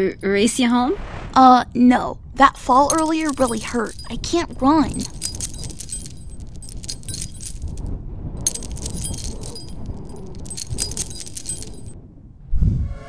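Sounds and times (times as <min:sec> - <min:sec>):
metallic jangling and clinking: 0:02.8 - 0:12.0.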